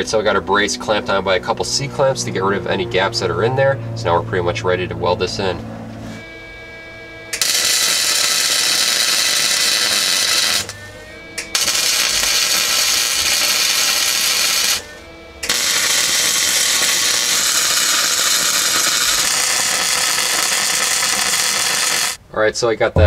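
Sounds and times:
welder arc crackling: 0:07.3 - 0:22.2.

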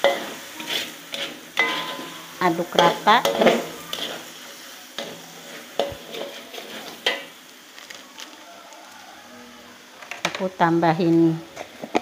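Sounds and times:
metal spatula scraping a wok: 0:00.0 - 0:07.4
food sizzling: 0:00.0 - 0:12.0.

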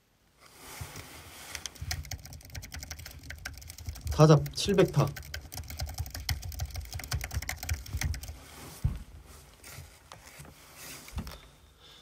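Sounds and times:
keyboard typing clicks: 0:01.6 - 0:08.4
thump: 0:08.8 - 0:09.1.

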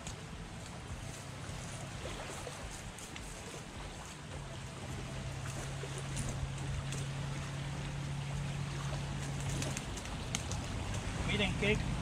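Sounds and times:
low motor drone: 0:00.0 - 0:12.0.

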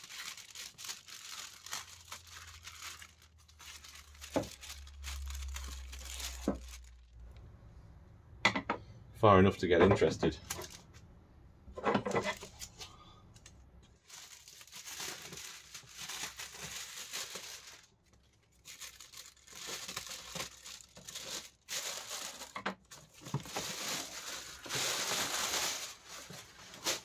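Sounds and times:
plastic bag tearing and crinkling: 0:00.0 - 0:07.1, 0:14.0 - 0:27.0.

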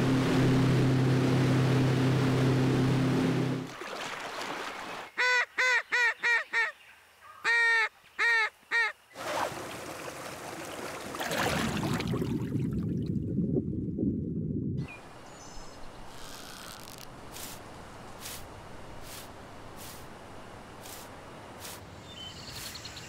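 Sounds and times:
boat motor hum: 0:00.0 - 0:03.8.

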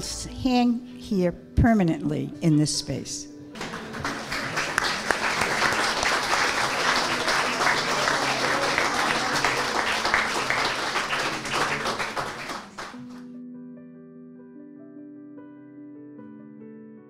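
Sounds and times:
audience applauding: 0:03.6 - 0:13.3.

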